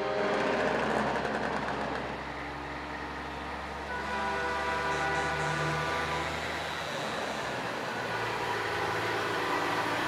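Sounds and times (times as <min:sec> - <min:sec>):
truck air horn blast: 0:03.9 - 0:06.5.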